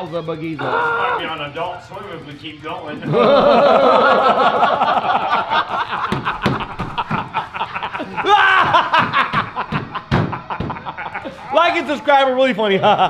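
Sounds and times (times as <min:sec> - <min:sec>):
people laughing: 0:02.8 - 0:13.0
loud high-pitched laugh: 0:03.0 - 0:11.5.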